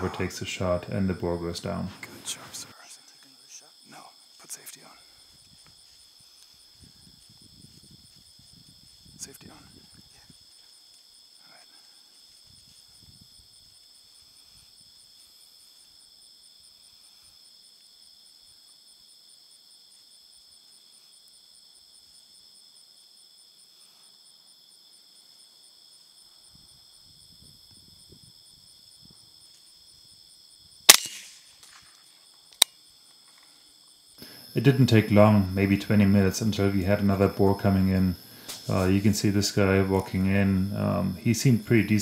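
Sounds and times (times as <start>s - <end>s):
night insects chirping: 0.0s - 42.0s
gunshot: 30.9s - 31.8s.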